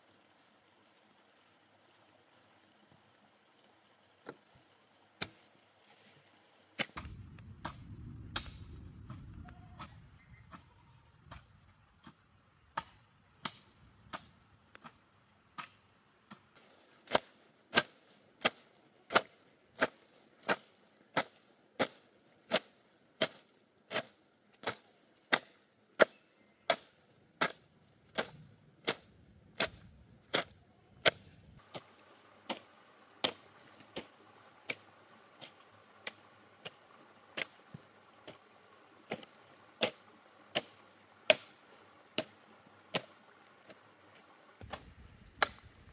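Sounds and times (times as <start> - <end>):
blade chopping wood: 6.8 - 8.6, 17.0 - 36.8, 37.4 - 38.4, 39.1 - 43.8, 44.6 - 45.7.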